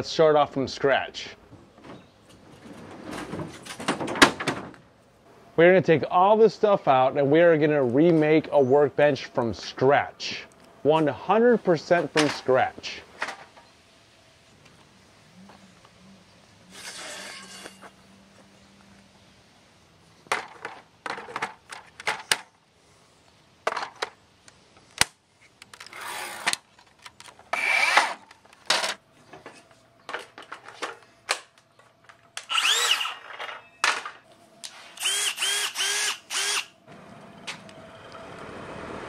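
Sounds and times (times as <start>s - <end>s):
cordless driver motor spinning: 32.5s - 33.2s, 35.0s - 36.7s.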